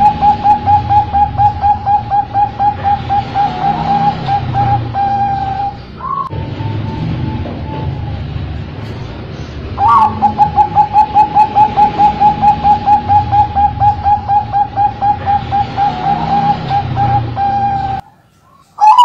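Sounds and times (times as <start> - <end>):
dove cooing: 0.0 - 8.2, 9.8 - 19.0.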